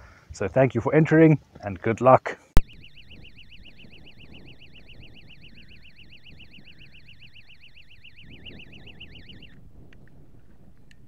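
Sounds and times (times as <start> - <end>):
bite alarm warbling tone: 2.6 - 9.6
wind rumble: 2.6 - 11.0.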